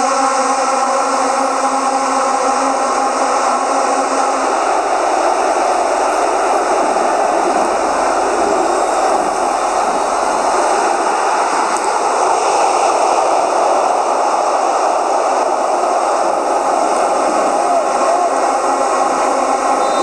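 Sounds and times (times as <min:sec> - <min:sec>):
stadium crowd noise: 0:00.0 - 0:20.0.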